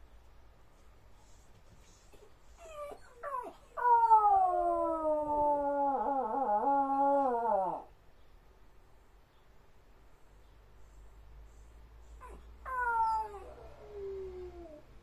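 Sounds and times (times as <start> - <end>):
dog howling and whining: 2.6 - 7.9, 12.2 - 14.9.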